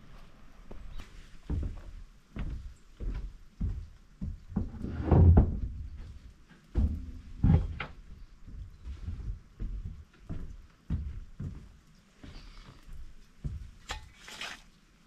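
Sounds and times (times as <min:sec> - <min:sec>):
dull thumps and knocks: 0:03.6 - 0:10.0.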